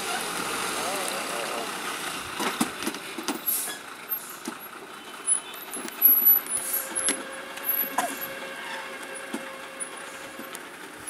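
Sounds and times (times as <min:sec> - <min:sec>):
lorry engine crawling: 0:00.0 - 0:11.0
short air hisses: 0:03.4 - 0:04.4, 0:06.6 - 0:07.0.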